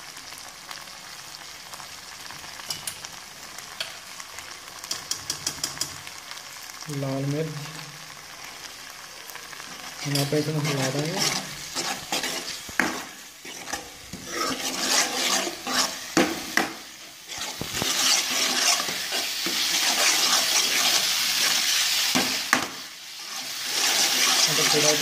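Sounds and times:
noodles sizzling in oil: 0:00.0 - 0:25.0
spatula scraping pan: 0:09.6 - 0:25.0.

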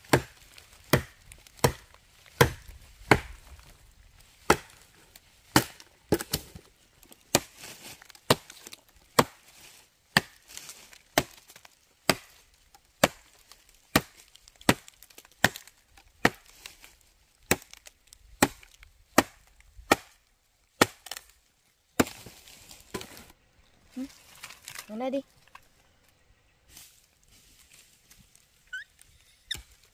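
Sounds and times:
machete chopping wood: 0:00.1 - 0:03.7, 0:04.4 - 0:04.8, 0:05.5 - 0:06.6, 0:07.3 - 0:09.4, 0:10.1 - 0:10.6, 0:11.2 - 0:12.4, 0:13.0 - 0:16.5, 0:17.5 - 0:20.2, 0:20.8 - 0:21.3, 0:22.0 - 0:22.3.

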